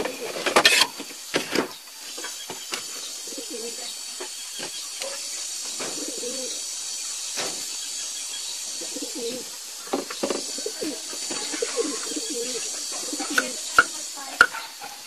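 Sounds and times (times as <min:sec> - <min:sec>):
dove cooing: 0:00.0 - 0:00.8, 0:03.1 - 0:04.0, 0:05.0 - 0:06.7, 0:08.7 - 0:14.8.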